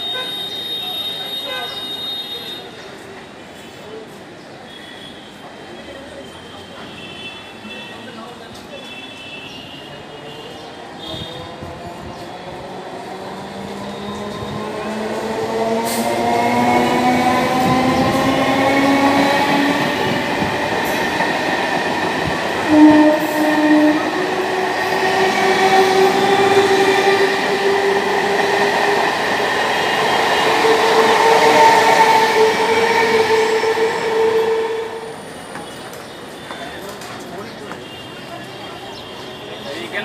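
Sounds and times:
train wheels rumbling on rails: 11.0 - 37.9
train horn blast: 22.5 - 27.2, 30.6 - 35.3.

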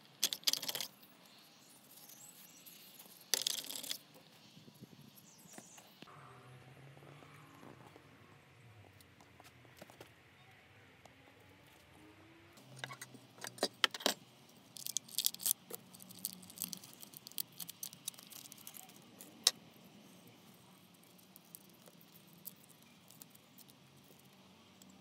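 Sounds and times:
metal parts clattering on wood: 3.3 - 4.0.

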